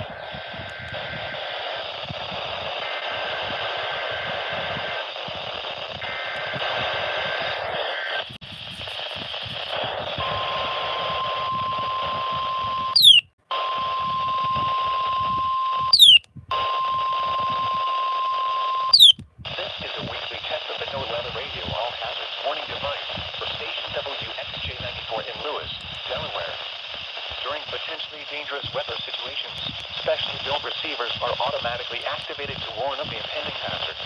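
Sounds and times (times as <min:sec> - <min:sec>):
radio static hiss: 0:00.0 - 0:12.4, 0:18.9 - 0:34.0
steady warning alarm tone: 0:10.2 - 0:19.2
digital data bursts: 0:13.0 - 0:13.2, 0:16.0 - 0:16.2, 0:18.9 - 0:19.2
sharp falling chirp: 0:13.0 - 0:13.2, 0:16.0 - 0:16.2, 0:19.0 - 0:19.2.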